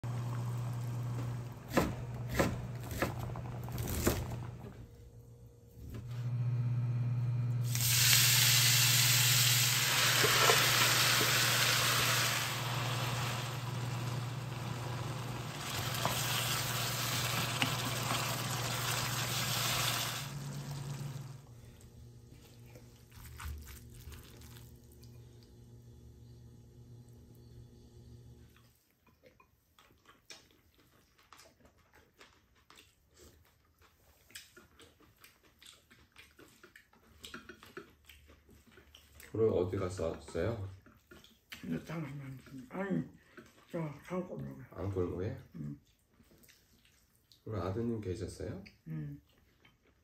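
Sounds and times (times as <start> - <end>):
food sizzling in a frying pan: 7.6 - 21.4.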